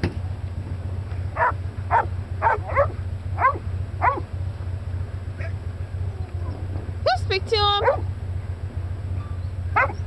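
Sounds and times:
steady low hum: 0.0s - 10.0s
dogs barking: 1.4s - 4.3s, 5.4s - 5.6s, 7.7s - 8.1s, 9.7s - 10.0s.

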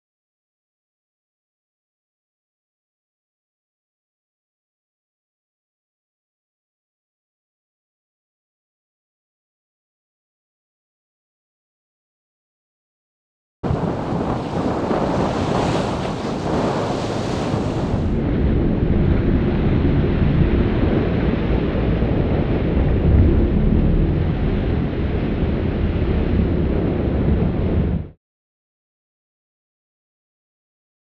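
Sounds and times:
open sea roar: 13.6s - 28.1s
wind buffeting microphone: 13.6s - 28.2s
boat wake churning: 13.7s - 28.1s.

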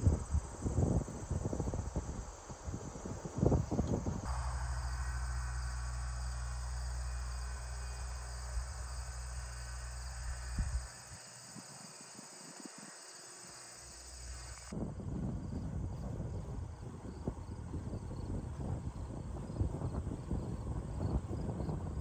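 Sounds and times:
crickets chirping: 0.0s - 22.0s
low rumble: 4.0s - 11.5s.

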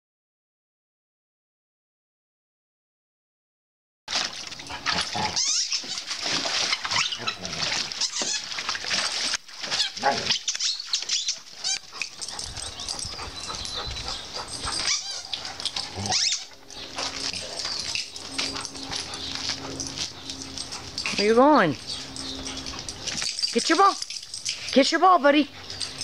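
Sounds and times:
dog splashing in water: 4.1s - 24.8s.

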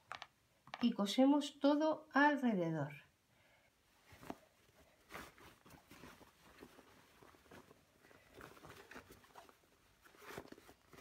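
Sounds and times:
fabric rustling and crumpling: 4.0s - 11.0s.

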